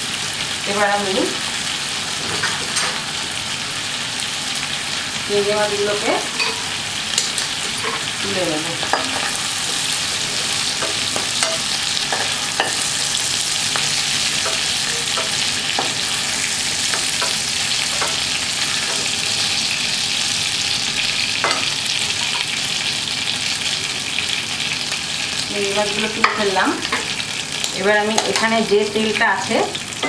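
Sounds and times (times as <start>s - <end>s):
oil sizzling in pan: 0.0s - 30.0s
spatula tapping and scraping pan: 10.6s - 12.9s, 13.7s - 16.2s, 16.8s - 19.2s.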